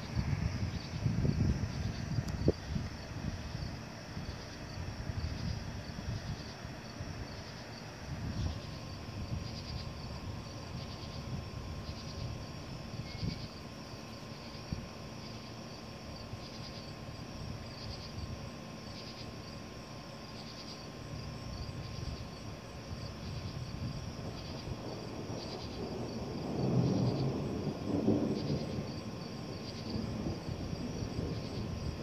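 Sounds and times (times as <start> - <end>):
thunder rumbling: 0.0 - 6.4, 22.9 - 32.0
insects chirping: 0.0 - 32.0.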